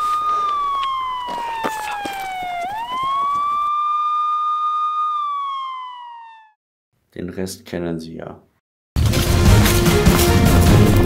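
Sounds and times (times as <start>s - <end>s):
police siren wailing: 0.0s - 6.6s.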